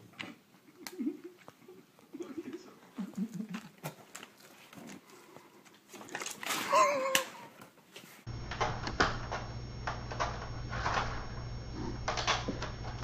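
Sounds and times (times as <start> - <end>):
steady low hum: 8.3 - 13.0.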